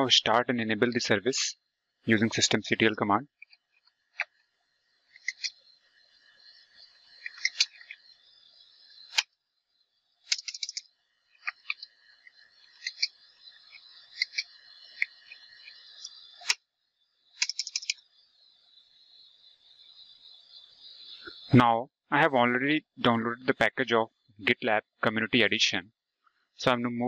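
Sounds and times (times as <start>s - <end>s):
faint steady hiss: 0.0s - 27.0s.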